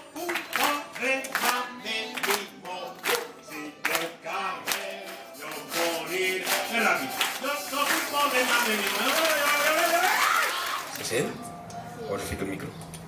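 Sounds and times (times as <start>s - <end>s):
song being sung: 0.0s - 11.0s
children clapping in time: 0.2s - 4.1s, 6.4s - 11.0s.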